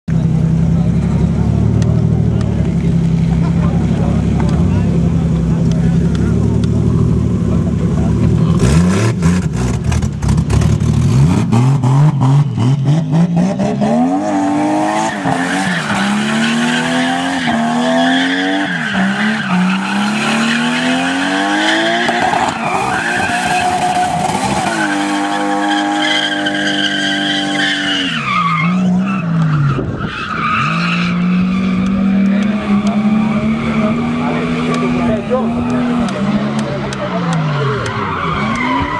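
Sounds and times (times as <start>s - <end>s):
car engines revving: 0.1s - 38.9s
tyres squealing on pavement: 14.7s - 38.9s.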